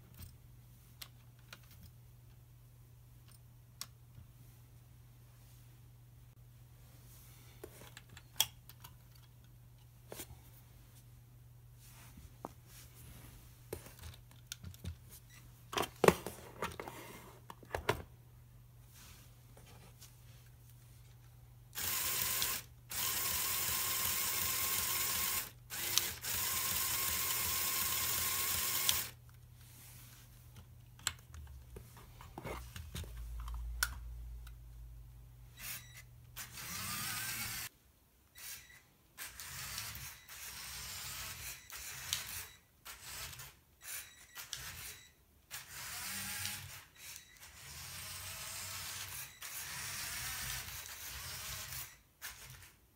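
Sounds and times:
toy motor gears whirring: 0:21.8 - 0:29.2, 0:35.6 - 0:37.7, 0:38.4 - 0:52.8.

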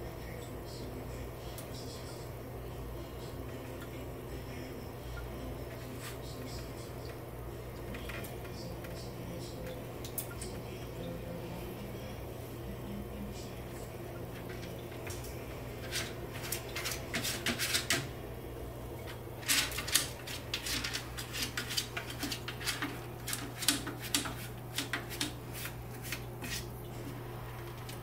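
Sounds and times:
cat scratching litter in plastic tray: 0:13.7 - 0:18.2, 0:19.1 - 0:28.0.

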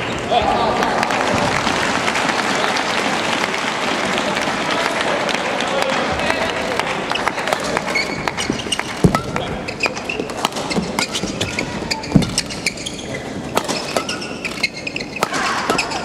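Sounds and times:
racket striking shuttlecock: 0:07.1 - 0:12.9, 0:13.5 - 0:16.0
shoes squeaking on court: 0:07.1 - 0:16.0.

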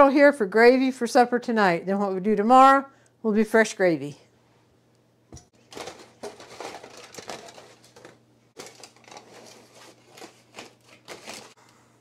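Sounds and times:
aluminum foil crinkling: 0:05.6 - 0:11.6.

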